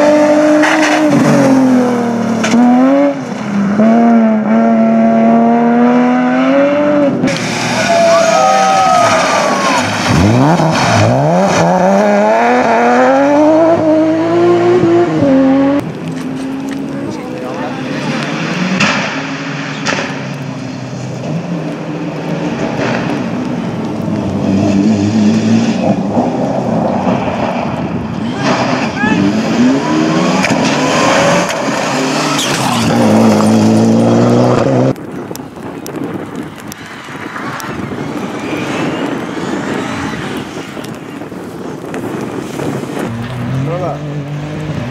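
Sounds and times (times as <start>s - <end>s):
car engine accelerating: 9.0s - 35.0s.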